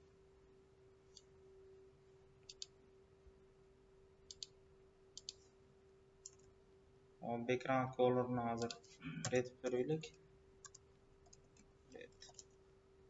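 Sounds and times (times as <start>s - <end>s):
faint electrical hum: 0.0s - 13.0s
computer mouse clicking: 2.4s - 2.8s, 4.3s - 4.6s, 5.2s - 5.5s, 6.2s - 6.5s, 8.6s - 9.4s, 10.6s - 12.6s.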